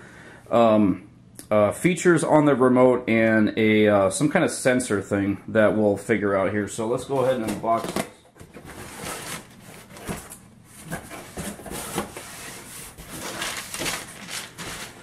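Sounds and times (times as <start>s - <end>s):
packing paper rustling: 7.1s - 15.0s.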